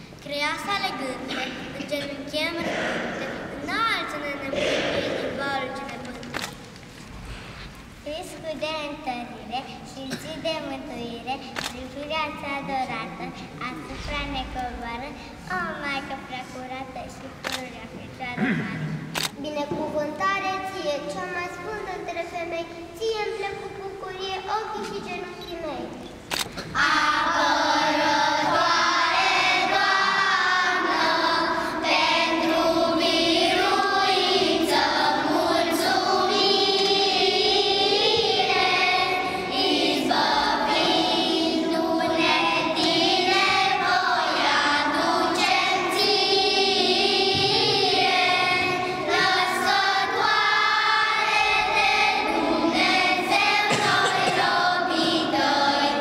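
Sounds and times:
children's choir singing: 1.2s - 6.4s, 26.7s - 56.0s.

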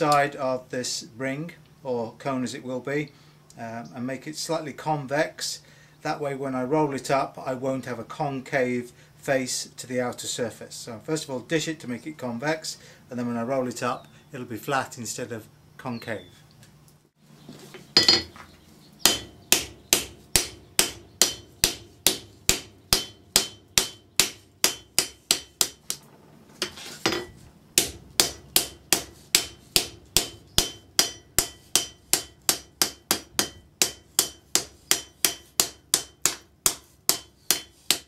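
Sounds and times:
hammer striking steel on anvil: 19.0s - 26.0s, 26.6s - 38.0s.

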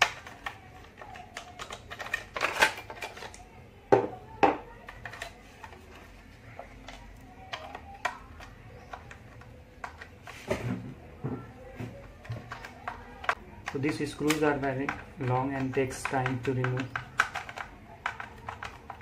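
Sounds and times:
plastic rattles: 0.0s - 3.4s, 11.8s - 19.0s
plastic toy clicks and knocks: 0.0s - 3.4s, 4.4s - 6.0s, 6.6s - 10.4s, 12.1s - 19.0s.

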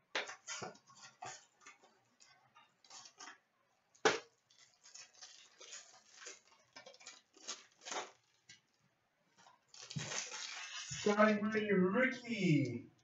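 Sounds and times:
foil pack crinkling: 4.0s - 8.8s, 9.4s - 11.1s
foil pack tearing snap: 4.1s - 8.4s.

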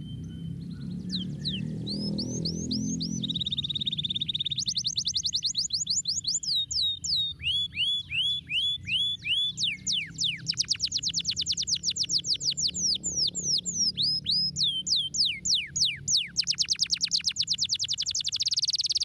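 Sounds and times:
canary singing trills: 0.0s - 19.0s.

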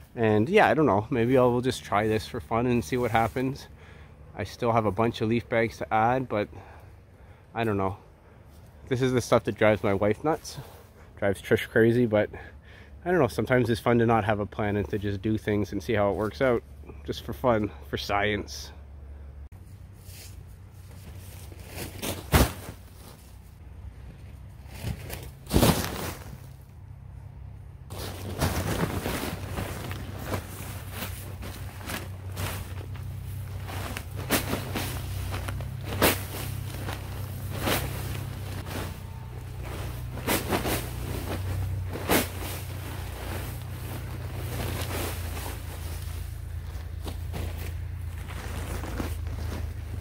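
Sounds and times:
steady low hum: 14.9s - 50.0s
paper bags of leaves crunching: 24.6s - 26.6s, 27.9s - 50.0s.

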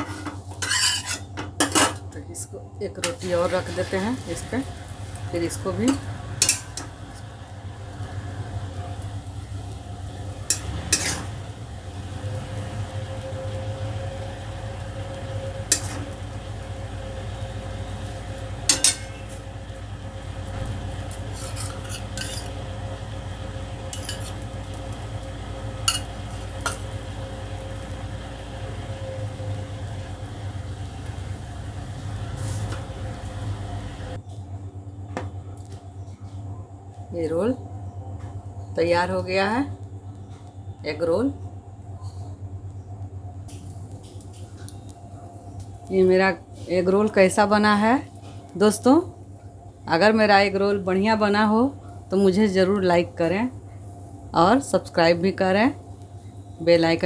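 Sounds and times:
metal utensil scraping ceramic plate: 0.0s - 1.3s, 10.5s - 11.3s, 21.3s - 22.6s
steady low hum: 0.0s - 57.0s.

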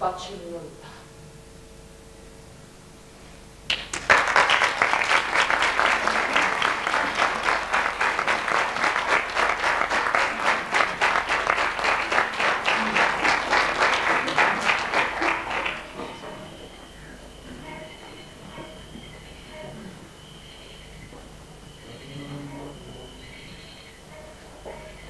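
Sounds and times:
audience applauding: 3.7s - 17.1s.

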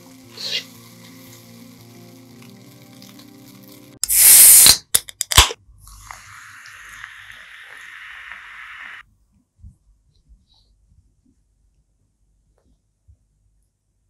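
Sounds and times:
static-like hiss: 0.0s - 4.8s, 5.9s - 9.0s.

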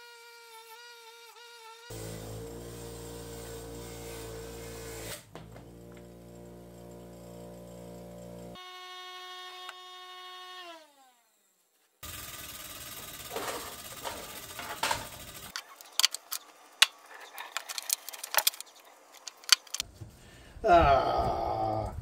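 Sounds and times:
metal tools clinking on workbench: 13.3s - 16.4s.

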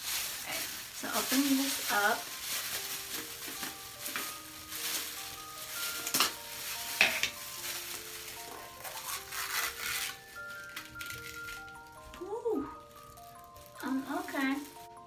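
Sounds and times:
plastic gloves crinkling: 0.0s - 15.0s
soft background music: 0.0s - 15.0s.

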